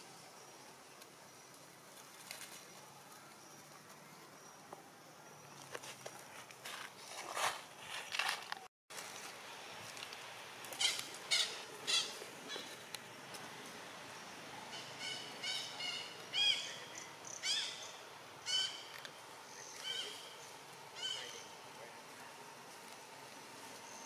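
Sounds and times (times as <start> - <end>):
infant monkey high-pitched calls: 10.8 - 12.8, 14.7 - 18.8, 21.0 - 21.5.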